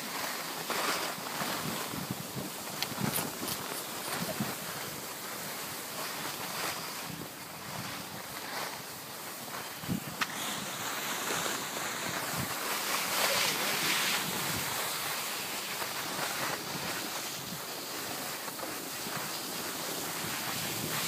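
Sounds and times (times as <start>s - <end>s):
snowboard scraping over snow: 0.0s - 21.0s
wind on microphone: 1.1s - 21.0s.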